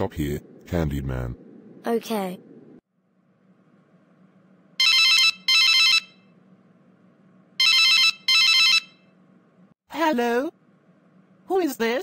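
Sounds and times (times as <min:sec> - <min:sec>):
faint low hum: 0:00.0 - 0:12.0
telephone ringing: 0:04.8 - 0:06.4, 0:07.6 - 0:09.2.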